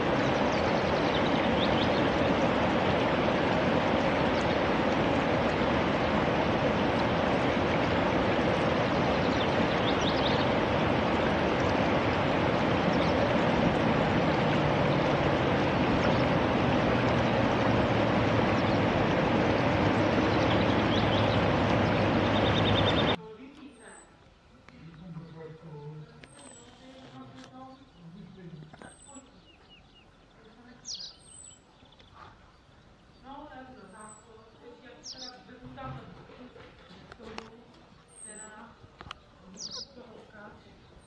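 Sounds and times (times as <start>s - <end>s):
flowing water rushing: 0.0s - 23.2s
wagtail calls: 0.0s - 24.1s, 26.0s - 35.6s, 36.4s - 41.0s
low steady hum: 0.0s - 41.0s.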